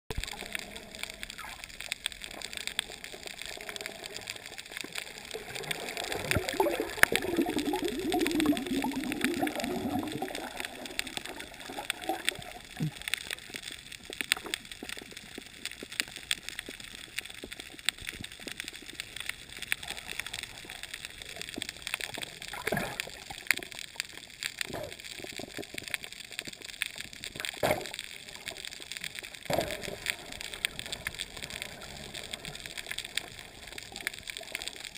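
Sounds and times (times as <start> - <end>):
muffled underwater gurgling: 0.1 - 13.6
sharp clicks and crackles: 0.1 - 34.9.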